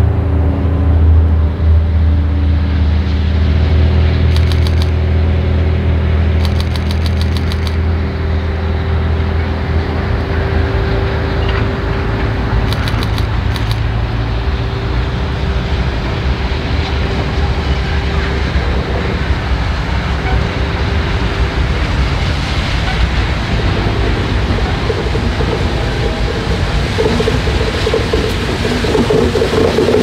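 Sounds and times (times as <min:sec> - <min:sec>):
vehicle rumble: 0:00.0 - 0:30.0
quick ticks: 0:04.3 - 0:05.0, 0:06.4 - 0:07.8, 0:12.7 - 0:13.9.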